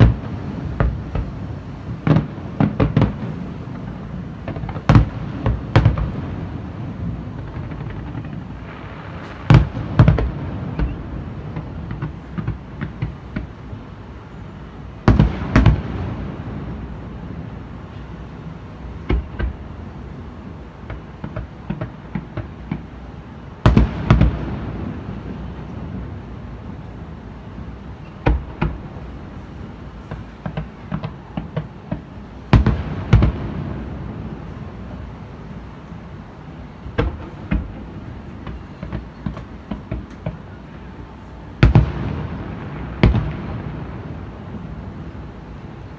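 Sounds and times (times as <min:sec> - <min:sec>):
small firework pops: 0:00.0 - 0:01.4, 0:02.0 - 0:03.4, 0:04.4 - 0:06.3, 0:07.3 - 0:13.6, 0:15.0 - 0:16.0, 0:19.0 - 0:19.8, 0:20.8 - 0:22.9, 0:23.6 - 0:24.6, 0:28.1 - 0:28.9, 0:30.0 - 0:33.5, 0:36.9 - 0:40.5, 0:41.6 - 0:43.8.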